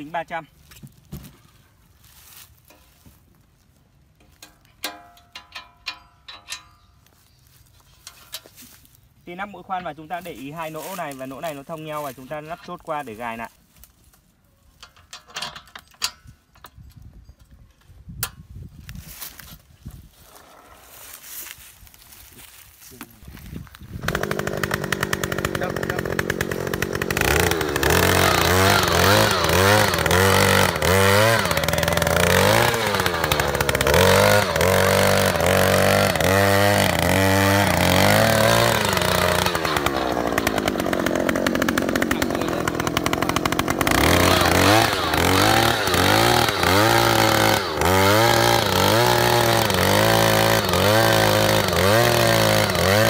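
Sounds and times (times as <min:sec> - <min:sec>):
earth auger engine revving: 0:20.2 - 0:21.0, 0:23.7 - 0:53.0.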